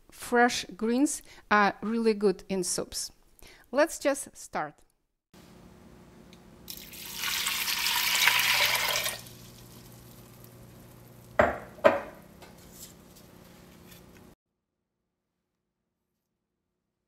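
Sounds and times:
water pouring into a pot: 6.7 - 11.4.

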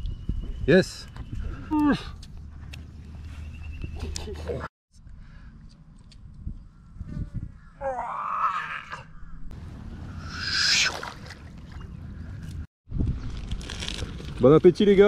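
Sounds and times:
fish splashing into water: 10.4 - 11.9.

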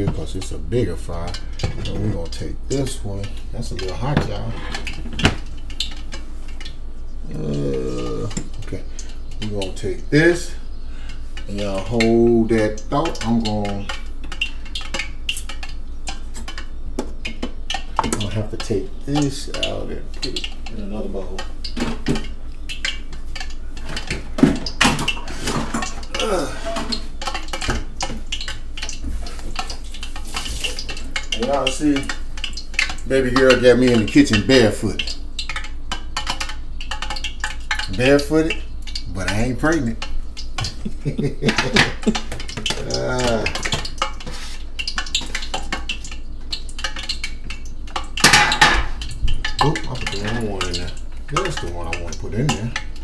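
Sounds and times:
low steady hum: 0.0 - 53.0
utensils clinking against cookware: 23.8 - 32.2, 40.6 - 44.6, 48.0 - 52.9.

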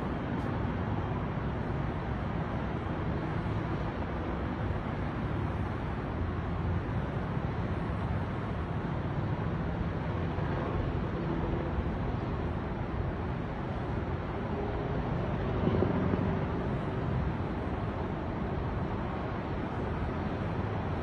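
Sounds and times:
helicopter drone: 7.8 - 21.0.

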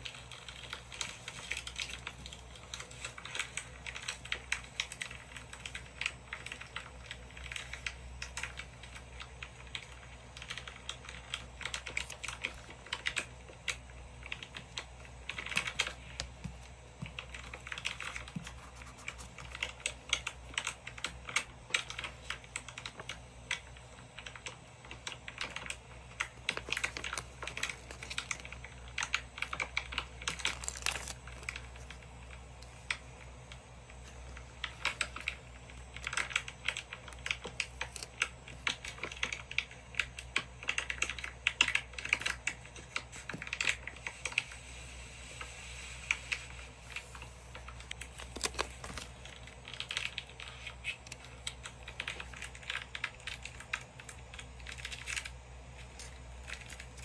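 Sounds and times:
tweezers and nails tapping paper: 0.0 - 44.5, 46.2 - 57.0
paper rustling: 15.3 - 21.0, 25.7 - 32.0, 46.1 - 52.6.

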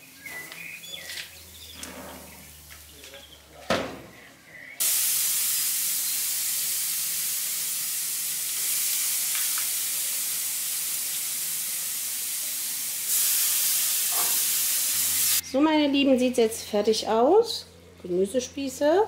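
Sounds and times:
food sizzling on a grill: 4.8 - 15.4.

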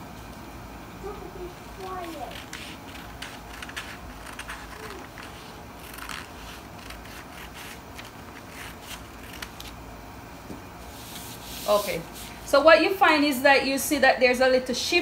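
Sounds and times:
scissors snipping paper: 2.0 - 9.7.

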